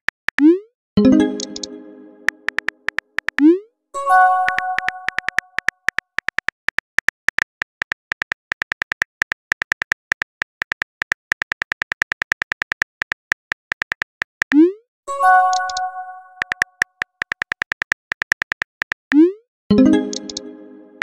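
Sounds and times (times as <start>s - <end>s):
chiming message tone: 1.0s - 2.5s, 4.0s - 5.6s, 15.1s - 16.6s, 19.7s - 21.0s
phone keyboard clicks: 1.4s - 1.7s, 2.3s - 3.5s, 4.4s - 14.6s, 15.5s - 19.2s, 20.1s - 20.4s.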